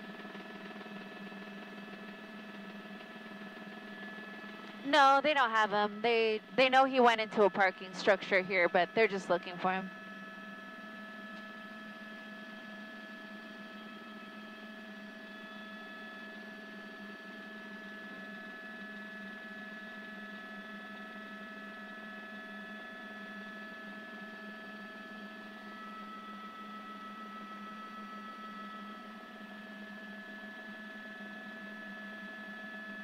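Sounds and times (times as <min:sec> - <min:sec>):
steady low hum: 0:01.6 - 0:11.5
thin steady tones: 0:04.8 - 0:09.9.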